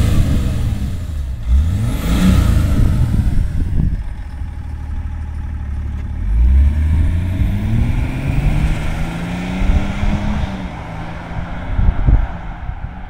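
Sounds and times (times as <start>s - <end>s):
car engine accelerating away: 0.0s - 13.0s.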